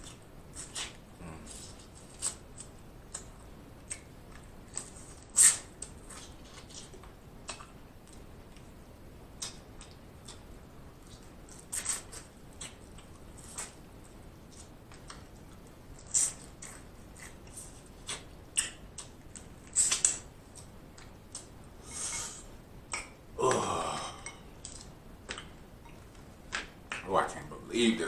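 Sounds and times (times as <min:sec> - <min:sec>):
person eating with wet smacks: 0:00.0 - 0:27.1
person burping: 0:23.4 - 0:24.5.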